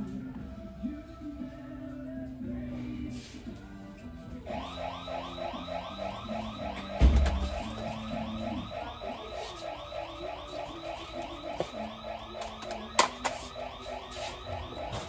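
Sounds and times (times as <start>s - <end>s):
background music repeating figure: 4.4s - 15.0s.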